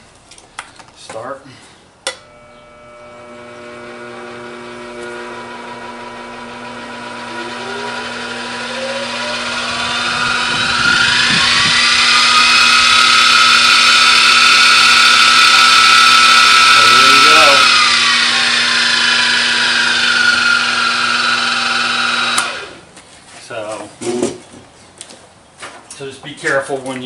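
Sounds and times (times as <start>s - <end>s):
milling machine spindle whine rising: 2.2s - 22.8s.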